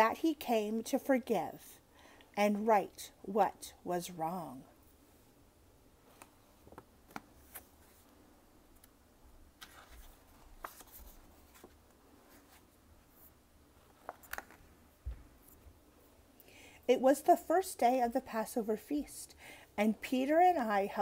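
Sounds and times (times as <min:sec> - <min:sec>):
paper rustling: 0:09.6 - 0:14.7.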